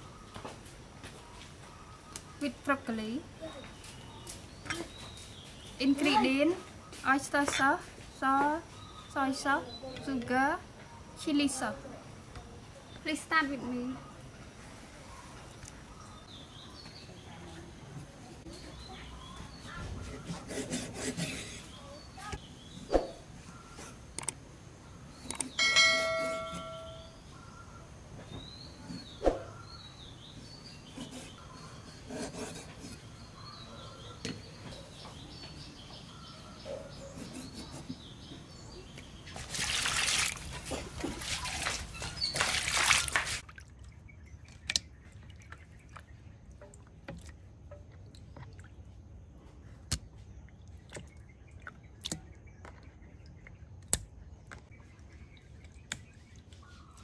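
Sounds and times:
small birds chirping: 0.0s - 57.0s
short chime: 25.6s - 27.2s.

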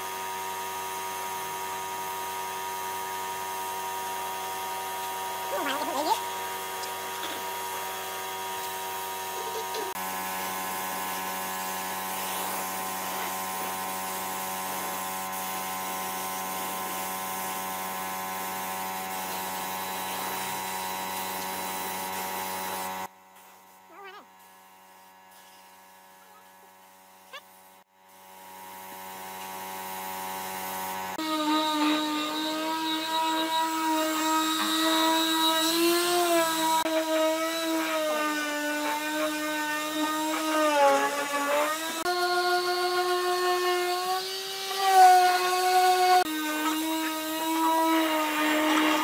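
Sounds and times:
spray gun hissing: 10.4s - 17.7s.

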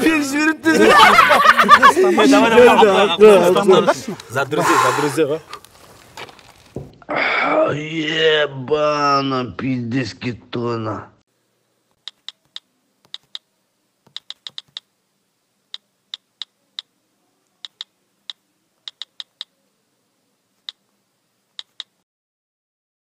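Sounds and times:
keyboard keystroke clicks: 12.0s - 13.4s, 14.1s - 14.9s, 17.6s - 19.5s, 21.6s - 22.0s.

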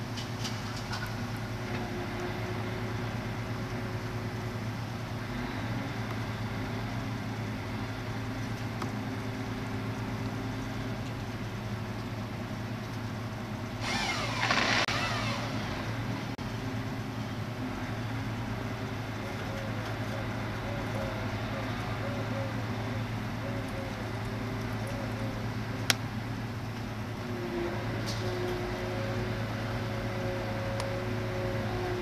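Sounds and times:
diesel engine humming: 0.0s - 32.0s
whining squealing noise: 13.8s - 16.4s.

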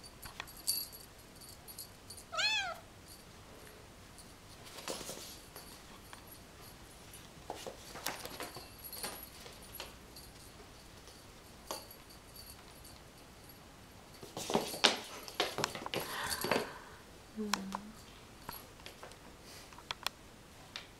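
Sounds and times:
kitten scuffling: 4.4s - 6.3s, 7.0s - 12.8s, 14.1s - 16.7s.

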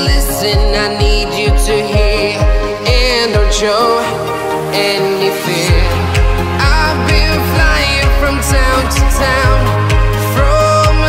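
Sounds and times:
electronic pop song: 0.0s - 11.0s
person singing: 0.0s - 11.0s
deep kick drum: 5.7s - 11.0s.

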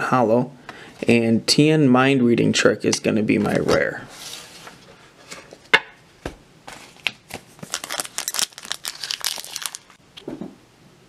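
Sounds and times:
foil pack crinkling: 6.7s - 10.0s.

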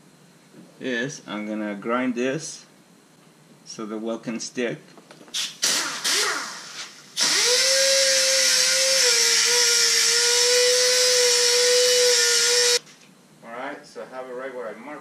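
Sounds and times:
pneumatic grinder whining on metal: 5.6s - 12.8s.

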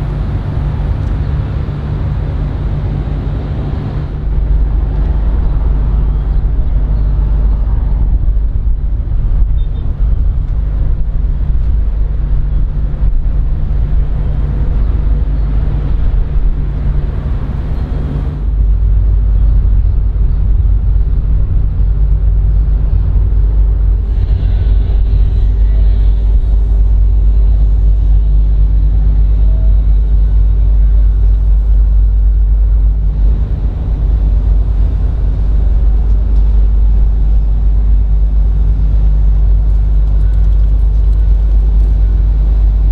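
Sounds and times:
low engine rumble: 0.0s - 42.9s.

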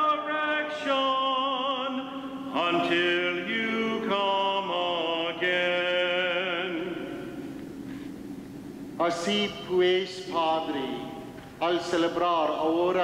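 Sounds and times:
voices chanting held notes: 2.1s - 7.5s.

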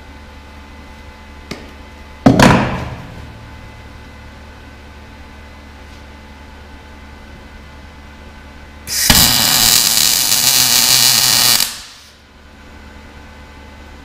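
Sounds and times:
steady low hum: 0.0s - 14.0s
welding arc crackling: 8.9s - 12.2s.

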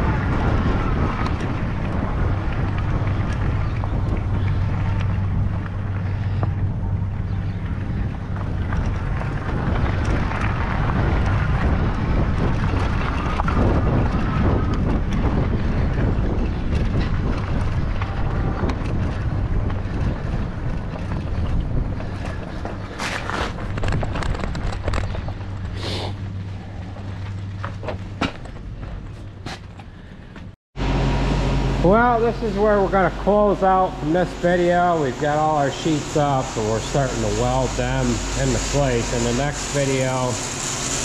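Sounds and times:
wind on microphone: 0.0s - 27.5s
small vehicle driving on dirt: 0.0s - 41.0s.

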